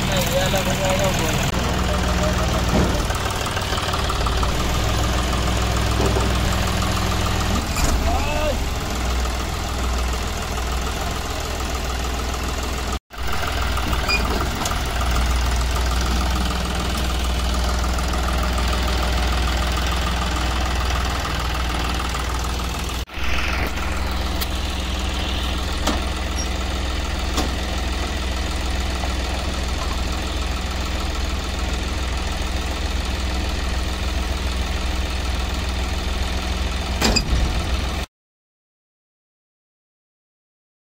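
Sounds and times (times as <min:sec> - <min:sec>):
combine harvester engine droning: 0:00.0 - 0:38.1.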